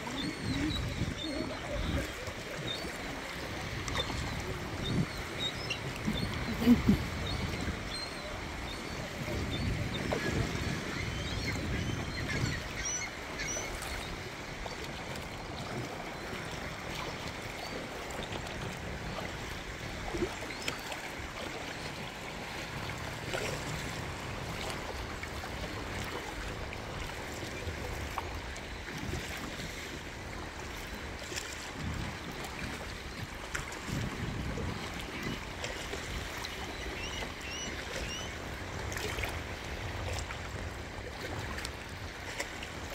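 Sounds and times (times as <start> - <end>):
wind buffeting microphone: 0.0 - 12.8, 31.8 - 36.4
water lapping against kayak hull: 0.0 - 42.9.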